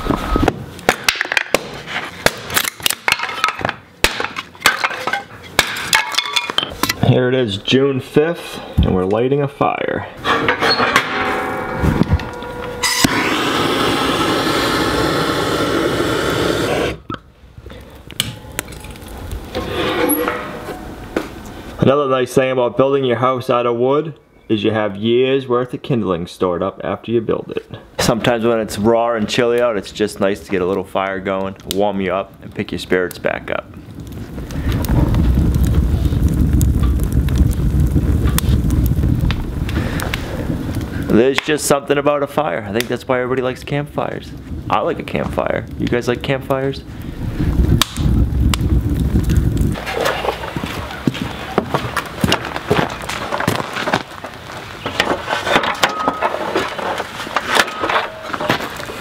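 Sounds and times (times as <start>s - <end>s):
wood fire crackling and popping: 0.0s - 7.8s, 8.8s - 22.3s, 26.9s - 59.0s
fire low rumble: 0.0s - 23.6s, 24.5s - 59.0s
torch lighter hissing: 12.9s - 17.1s.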